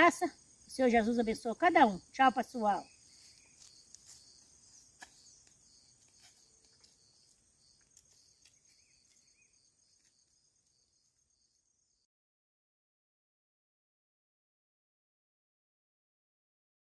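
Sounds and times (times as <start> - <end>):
high-pitched insect chirring: 0.0 - 12.0.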